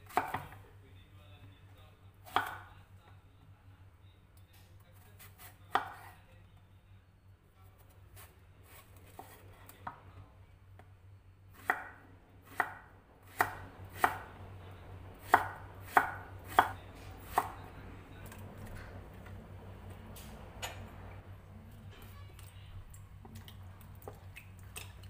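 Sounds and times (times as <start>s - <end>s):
knife slicing vegetable: 0.0s - 0.6s, 5.0s - 6.2s, 8.1s - 9.9s, 12.5s - 14.3s, 15.2s - 17.6s.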